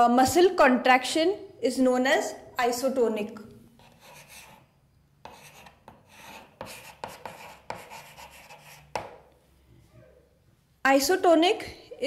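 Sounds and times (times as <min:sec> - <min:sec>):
chalk tapping on board: 0:03.8 - 0:04.6, 0:05.2 - 0:09.3
chalk scratching on blackboard: 0:03.8 - 0:09.2.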